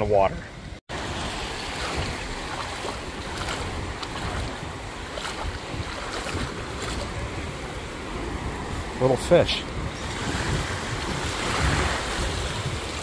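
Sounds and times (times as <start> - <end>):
wind noise on microphone: 0.0 - 13.0
small waves washing: 0.9 - 13.0
faint splashes: 1.0 - 7.4.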